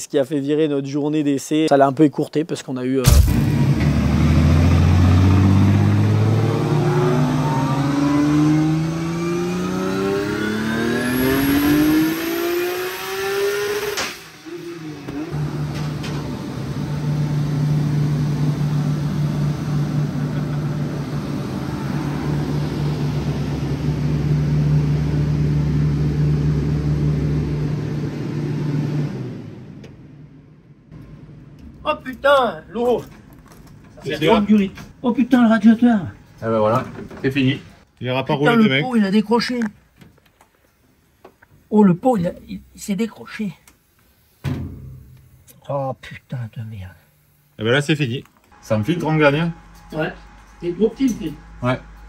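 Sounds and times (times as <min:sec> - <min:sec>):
car engine full-throttle pull: 0:03.1 - 0:30.2
steady drone: 0:03.1 - 0:30.6, 0:48.5 - 0:52.0.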